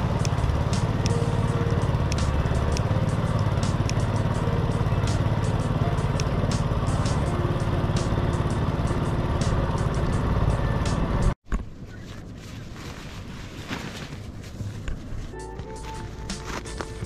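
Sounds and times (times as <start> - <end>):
small boat engine running: 0.0 - 11.4
sharp ticks: 0.1 - 1.2, 2.0 - 4.2, 5.0 - 7.3.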